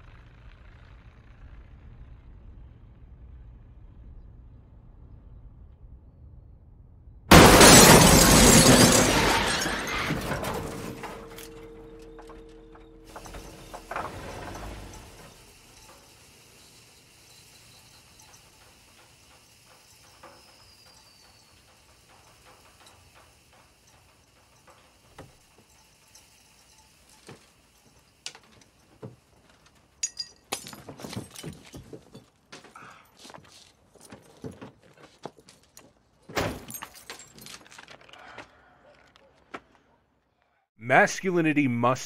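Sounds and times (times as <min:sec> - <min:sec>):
car crash impact: 0:07.3 - 0:25.7
hiss from wrecked car: 0:13.1 - 0:29.4
small clicks and creaks: 0:37.4 - 0:39.5.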